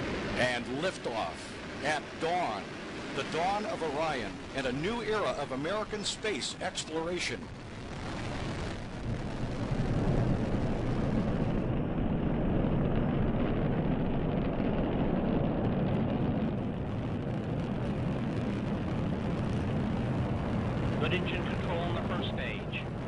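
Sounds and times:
rocket engines roaring: 0.0s - 23.0s.

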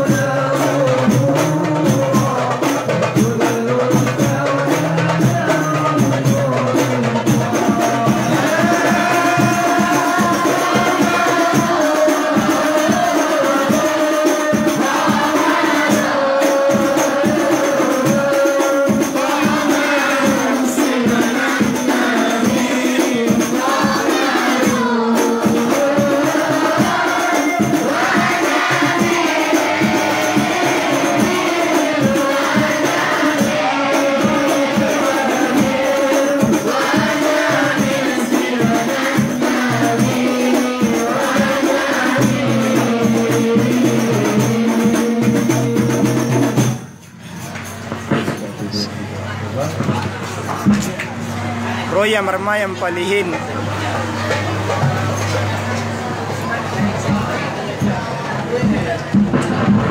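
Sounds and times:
frame drums beating quick rhythm: 0.0s - 48.9s, 49.6s - 59.9s
voices singing devotional song: 0.0s - 59.9s.

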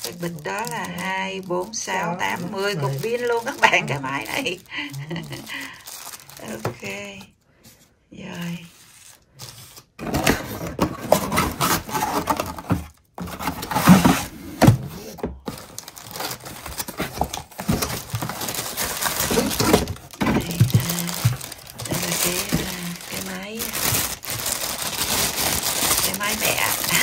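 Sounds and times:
plastic bag crinkling: 0.0s - 7.3s, 15.4s - 27.0s
cardboard tray scraping and knocking: 10.0s - 15.6s.

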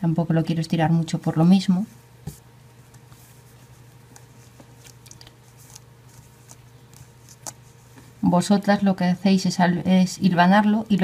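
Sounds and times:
fabric rustling: 2.3s - 8.3s.

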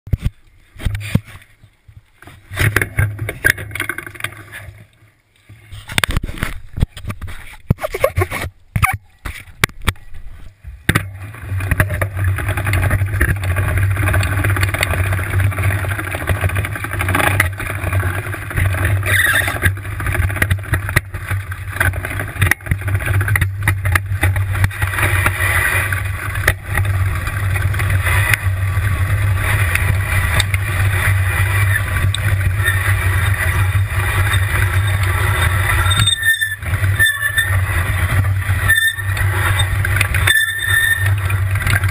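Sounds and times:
low rumble of rolling tricycle: 0.1s - 41.9s
clatters from bumps: 2.2s - 4.9s, 5.8s - 41.9s
tricycle knocks and rattles: 10.8s - 41.9s.

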